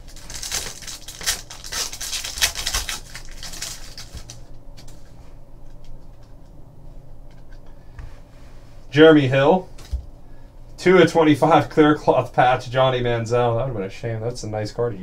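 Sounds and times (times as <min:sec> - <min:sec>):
foil pack crinkling: 0:00.0 - 0:05.1
cards clicking and rustling: 0:00.1 - 0:05.0.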